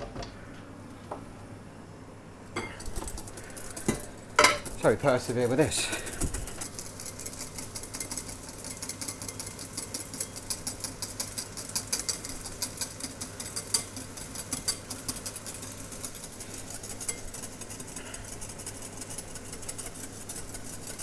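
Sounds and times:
wire whisk ticking against glass: 6.8 - 21.0.

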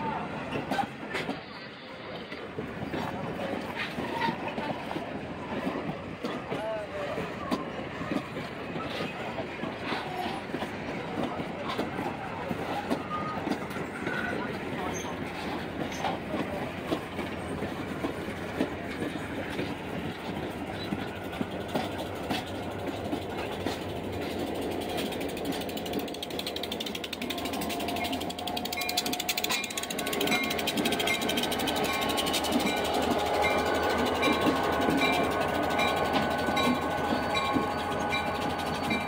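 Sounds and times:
train rolling over rails: 0.0 - 39.0
metallic clicks and clanks: 20.9 - 39.0
metallic squeal: 28.7 - 39.0.

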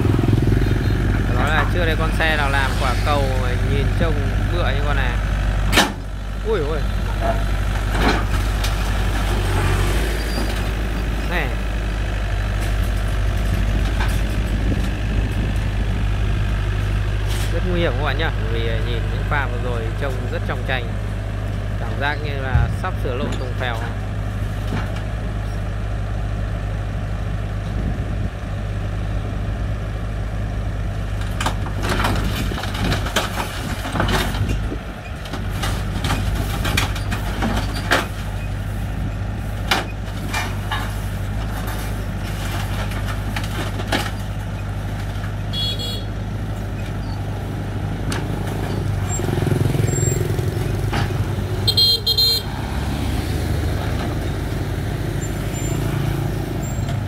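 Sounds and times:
tracks clanking on steel ramps: 0.0 - 15.9, 21.9 - 25.6, 31.2 - 57.0
diesel engine running: 0.0 - 57.0
van engine rumbling: 0.0 - 57.0
vehicle horn toots: 45.5 - 46.2, 51.6 - 52.6.

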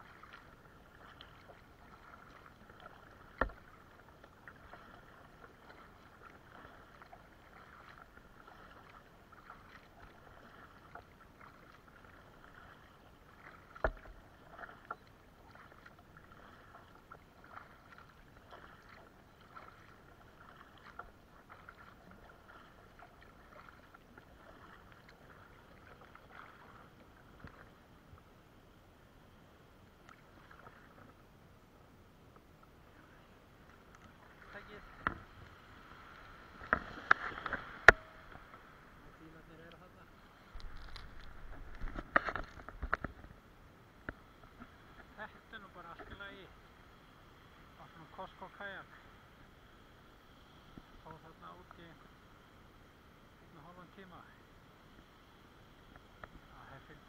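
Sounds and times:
water lapping against kayak hull: 0.0 - 28.5, 29.5 - 57.0
small irregular ticks: 40.6 - 43.3.

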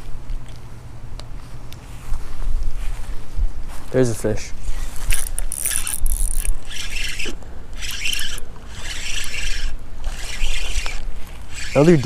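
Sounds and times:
fishing reel whirring: 5.0 - 12.0.

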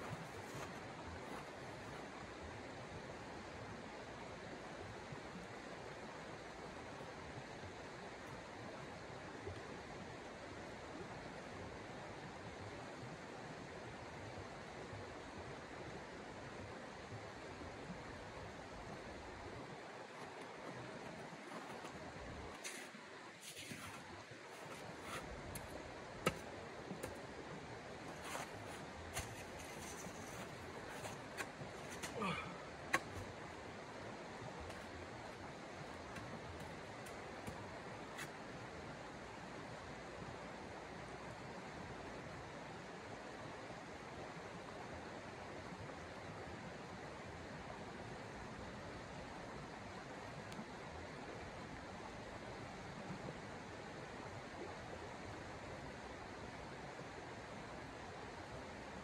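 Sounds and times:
creek flowing over stones: 0.0 - 41.0
creek rushing: 19.5 - 38.6
camp chair creaking: 20.2 - 26.4, 28.1 - 33.3.

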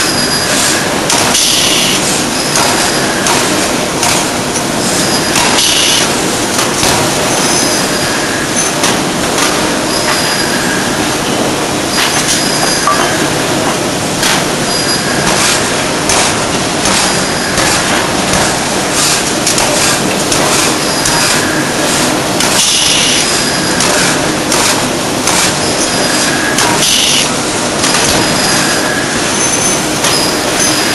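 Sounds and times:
rolling mill machine noise: 0.0 - 30.9
high squeals of rolls: 9.9 - 10.9, 12.0 - 12.9, 28.2 - 30.9.

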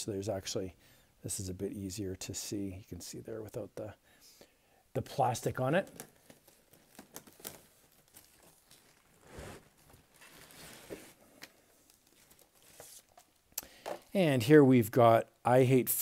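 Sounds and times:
plastic bag crinkling: 5.8 - 13.4.

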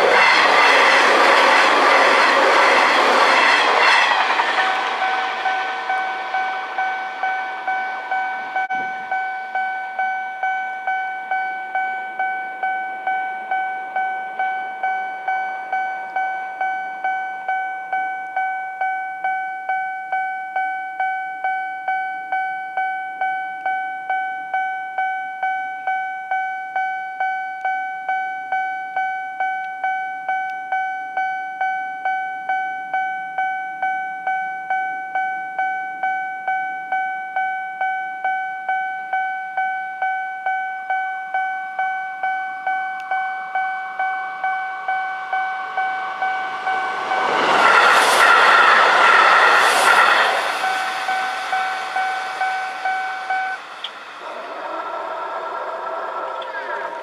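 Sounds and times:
train passing: 0.0 - 21.1, 40.6 - 57.0
level crossing warning bell ringing: 0.0 - 48.0, 50.6 - 57.0.

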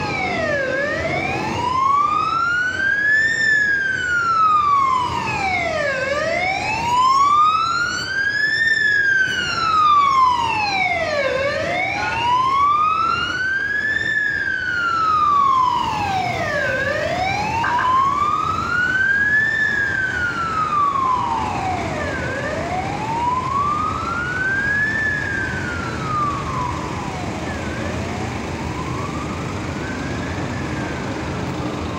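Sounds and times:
ambulance siren wailing: 0.0 - 31.9
traffic noise: 0.0 - 31.9.

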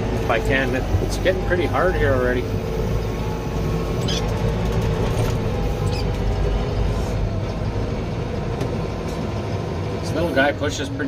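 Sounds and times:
tractor engine running under load: 0.0 - 11.0
brief high squeak: 5.8 - 6.2.

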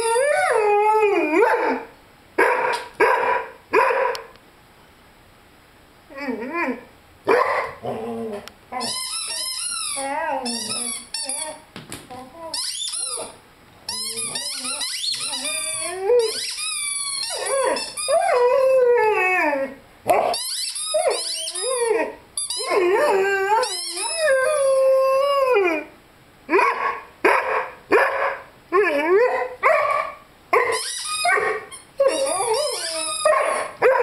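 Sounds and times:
puppy howling: 0.0 - 1.9, 7.6 - 16.6, 17.2 - 25.9, 28.7 - 34.0
squeaky rubber toy squeaking: 8.8 - 11.6, 12.5 - 18.3, 20.2 - 21.8, 22.4 - 22.9, 23.5 - 24.4, 30.6 - 33.7.

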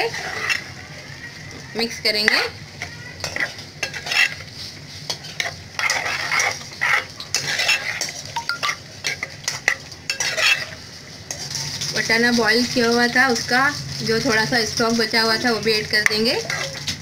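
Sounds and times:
spoon scraping metal pot: 0.0 - 0.8, 3.2 - 13.0, 15.4 - 17.0.

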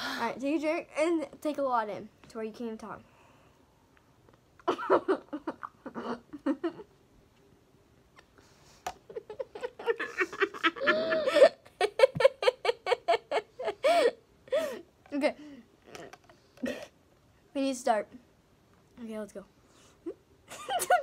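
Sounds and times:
girls giggling stifled: 9.1 - 14.8.

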